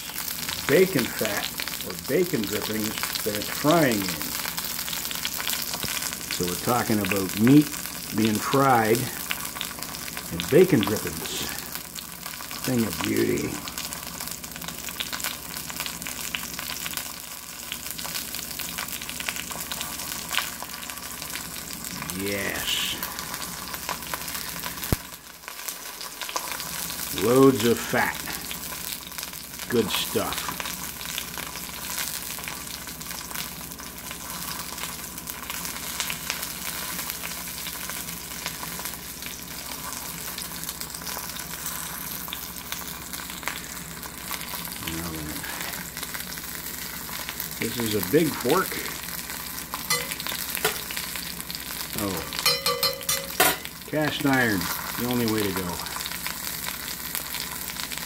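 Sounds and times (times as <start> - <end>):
fat crackling and popping: 0.0 - 58.0
steak sizzling in a skillet: 0.0 - 58.0.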